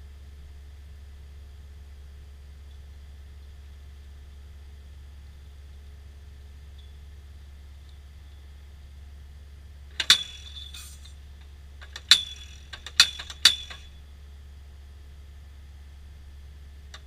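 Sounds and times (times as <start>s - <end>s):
steady low hum: 0.0s - 17.0s
post thumper striking steel post: 10.0s - 11.2s, 11.8s - 13.9s
light metallic clinks: 10.0s - 14.0s.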